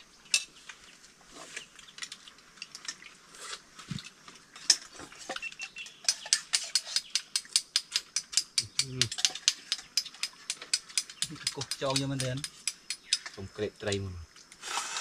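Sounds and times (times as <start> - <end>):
metal utensils clicking against dishes: 4.6 - 13.4.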